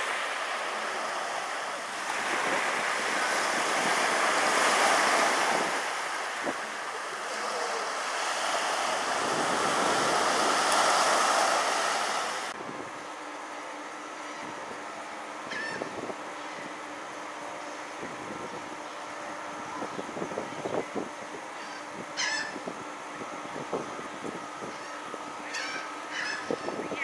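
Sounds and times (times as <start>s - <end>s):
waves breaking on a beach: 0.0s - 12.6s.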